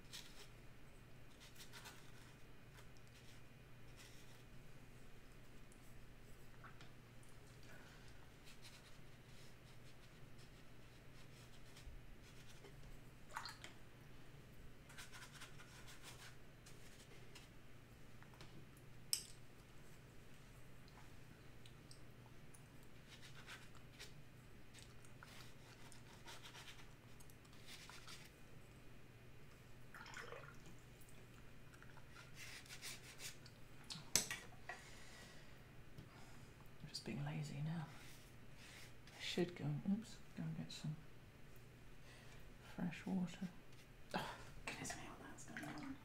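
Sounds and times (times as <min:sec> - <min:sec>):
low steady hum: 0:00.0 - 0:46.0
faint scratches and light taps: 0:08.4 - 0:13.0, 0:14.9 - 0:17.6.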